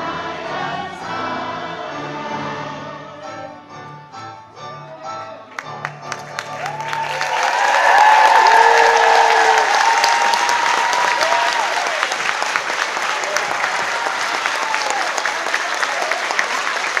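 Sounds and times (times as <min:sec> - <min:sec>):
audience applauding: 0:05.5 - 0:17.0
people cheering: 0:06.0 - 0:17.0.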